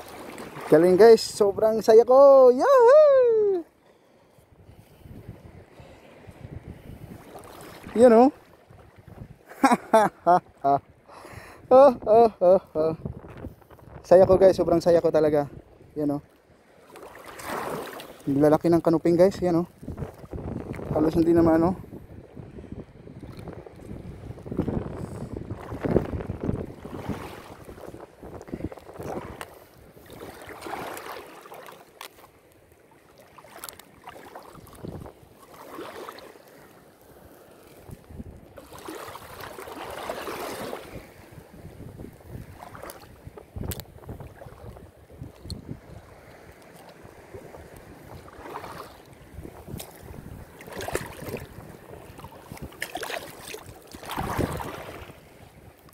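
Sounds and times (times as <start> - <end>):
water sloshing and splashing: 0.0 - 1.9, 4.8 - 11.0, 16.2 - 21.6, 23.1 - 55.9
wind buffeting microphone: 4.5 - 9.6, 10.8 - 16.2, 17.4 - 31.0, 34.5 - 35.3, 37.7 - 55.9
splashes of wading feet: 16.8 - 18.2, 30.0 - 32.4, 33.1 - 36.7, 38.6 - 40.9, 42.5 - 43.1, 50.6 - 55.1.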